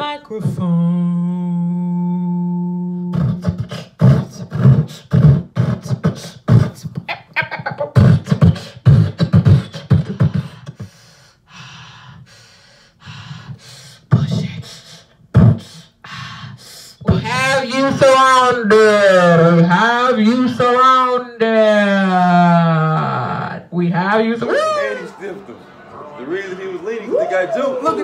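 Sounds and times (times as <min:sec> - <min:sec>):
woman beatboxing: 0:00.0 - 0:10.9, 0:13.0 - 0:18.2, 0:22.7 - 0:24.8.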